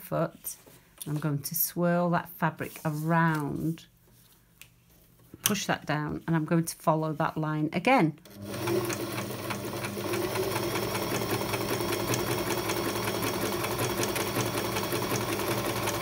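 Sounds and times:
sewing machine motor hum: 0:08.2 - 0:16.0
sewing machine needle clatter: 0:08.3 - 0:16.0.

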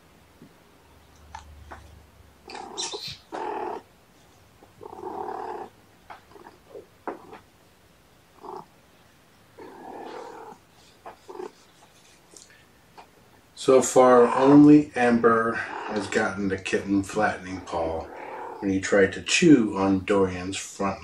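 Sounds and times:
cat calling: 0:02.4 - 0:03.9, 0:04.8 - 0:07.4, 0:09.6 - 0:11.6, 0:17.5 - 0:18.6.

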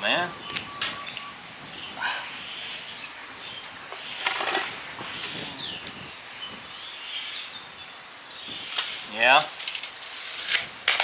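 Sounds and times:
bird chirps: 0:00.2 - 0:04.4
handling noise: 0:03.9 - 0:06.1.

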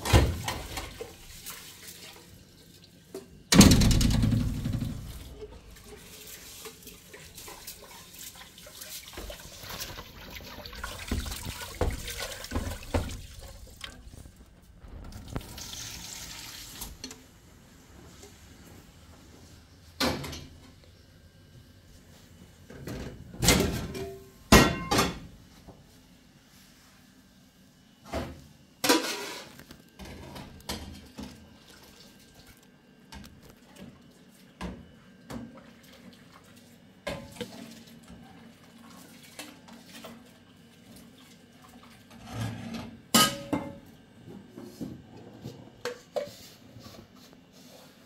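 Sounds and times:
metal pots clanking: 0:23.7 - 0:25.3, 0:43.2 - 0:43.8.

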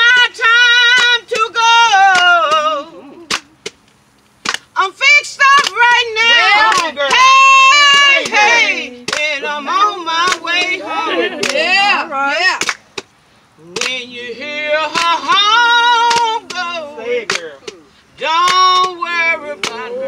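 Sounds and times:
woman singing gospel song: 0:00.0 - 0:03.7, 0:04.7 - 0:12.8, 0:13.6 - 0:20.0
hand claps: 0:00.9 - 0:01.5, 0:02.1 - 0:04.7, 0:05.5 - 0:09.4, 0:10.2 - 0:11.8, 0:12.5 - 0:14.0, 0:14.9 - 0:20.0.

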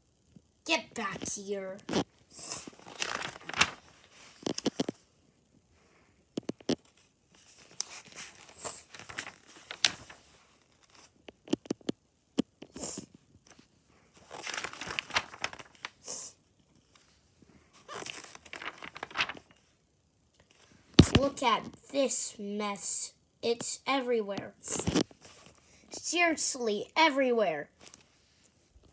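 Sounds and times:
paper pages rustling: 0:01.8 - 0:05.0, 0:06.4 - 0:11.8, 0:12.6 - 0:16.0, 0:17.8 - 0:19.7, 0:20.5 - 0:21.4, 0:24.7 - 0:25.6, 0:27.8 - 0:28.5.

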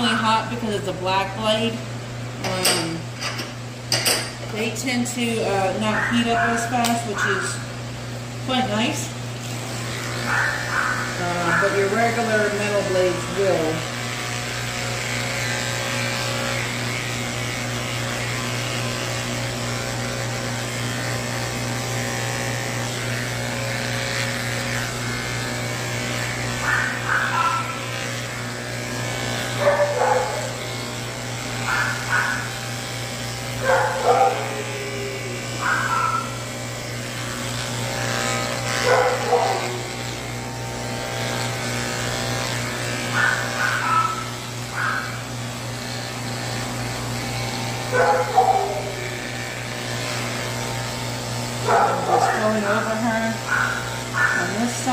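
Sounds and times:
electric clippers humming: 0:00.0 - 0:54.9.

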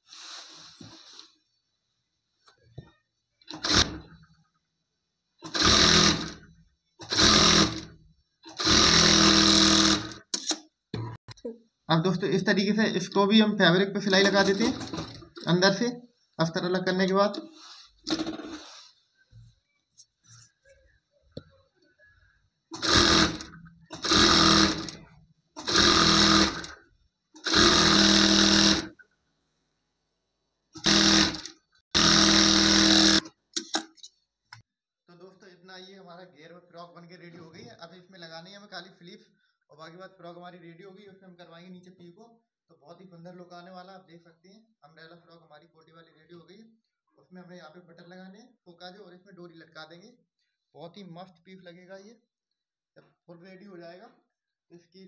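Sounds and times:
sewing machine stitching: 0:03.5 - 0:04.2, 0:05.4 - 0:10.6, 0:14.1 - 0:15.8, 0:18.0 - 0:18.8, 0:22.7 - 0:26.8, 0:27.4 - 0:28.9, 0:30.8 - 0:34.1.

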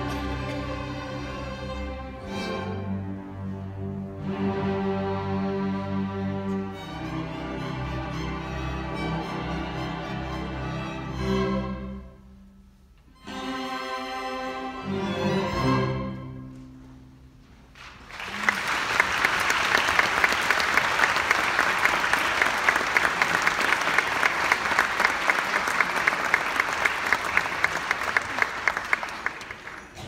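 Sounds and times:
audience applauding: 0:17.8 - 0:30.0.

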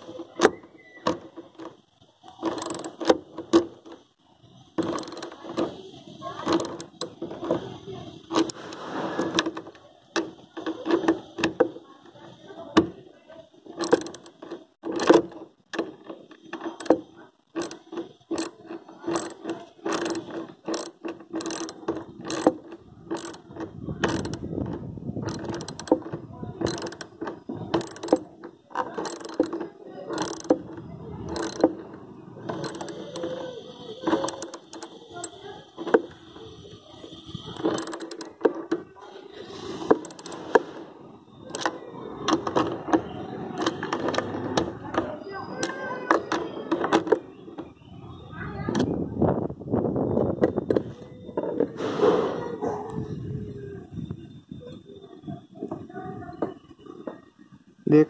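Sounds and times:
ratchet wrench clicking: 0:02.4 - 0:03.2, 0:04.8 - 0:05.4, 0:06.5 - 0:07.2, 0:13.8 - 0:15.4, 0:16.3 - 0:24.5, 0:25.2 - 0:28.3, 0:29.0 - 0:29.6, 0:30.2 - 0:31.8, 0:32.4 - 0:35.4, 0:37.2 - 0:38.4, 0:39.9 - 0:40.4.

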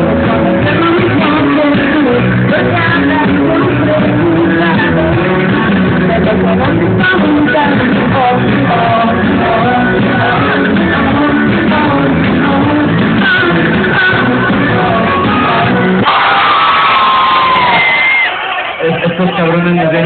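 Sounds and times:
live rock band with singer: 0:00.0 - 0:18.4.

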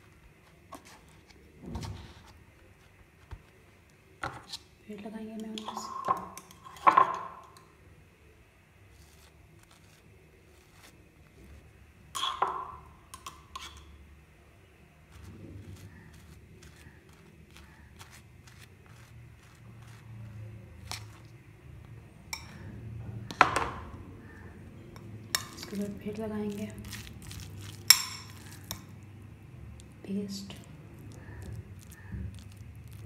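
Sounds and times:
knife scraping bread: 0:08.9 - 0:12.4, 0:15.1 - 0:21.4.

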